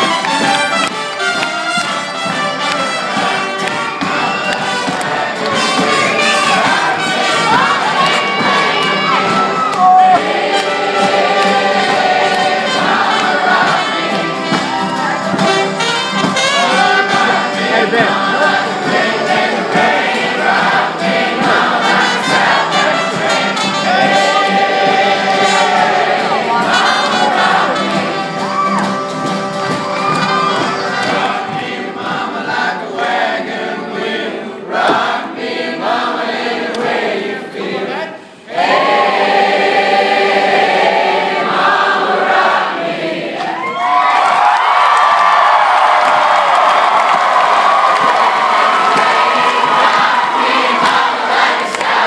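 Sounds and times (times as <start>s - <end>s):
trumpet and trombone: 0.0s - 19.4s, 20.6s - 31.3s
acoustic guitars: 0.0s - 33.0s
banjos: 0.0s - 33.1s
accordion: 0.0s - 38.0s
crowd noise: 0.0s - 52.0s
many voices singing together: 2.7s - 43.7s, 45.5s - 52.0s.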